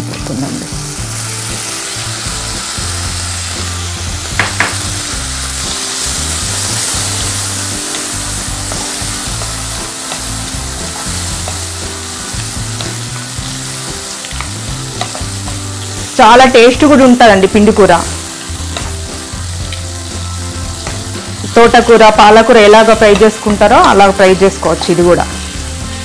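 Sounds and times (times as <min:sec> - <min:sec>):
oil sizzling in a pan: 0:00.0 - 0:26.0
spoon knocking on pan: 0:04.3 - 0:05.0.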